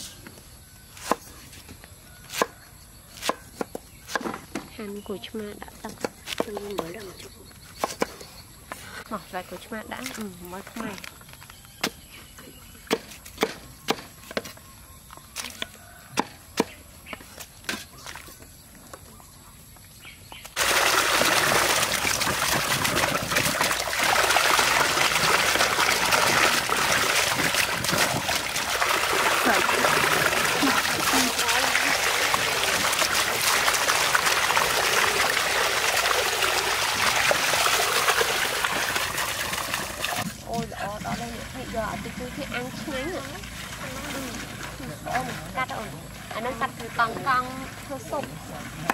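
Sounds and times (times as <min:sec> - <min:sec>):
knife chopping on wooden block: 0:01.0 - 0:01.3, 0:02.3 - 0:02.5, 0:03.2 - 0:04.7, 0:12.9 - 0:14.6, 0:15.4 - 0:17.9
water pouring and splashing: 0:20.6 - 0:48.9.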